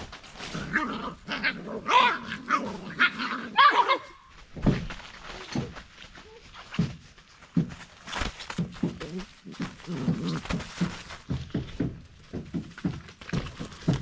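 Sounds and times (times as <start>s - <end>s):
puppies growling and yipping: 0.4s - 4.2s.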